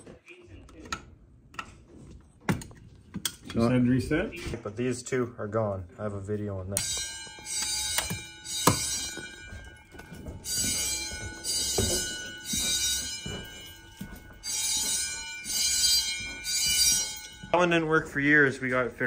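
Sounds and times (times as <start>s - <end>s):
fire alarm bells ringing: 6.0s - 19.0s.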